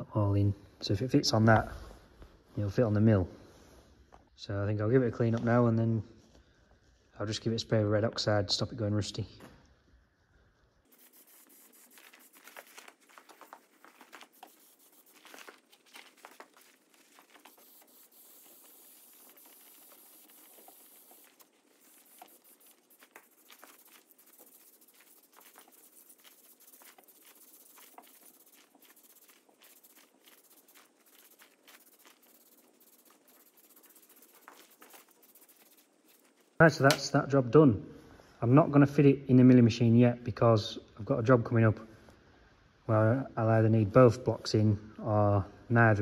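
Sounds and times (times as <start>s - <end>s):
aerosol can spraying: 10.9s - 37.0s.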